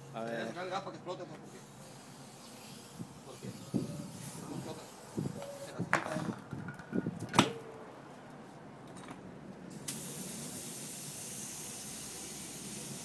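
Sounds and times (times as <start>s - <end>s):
compressed air hissing: 1.5s - 5.8s, 9.7s - 13.0s.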